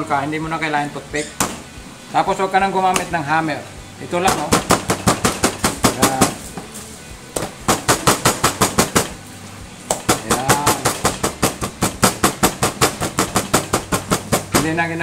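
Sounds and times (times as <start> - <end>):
knife beating meat on board: 2.9 - 3.2, 4.2 - 6.7, 7.4 - 9.1, 9.9 - 14.8.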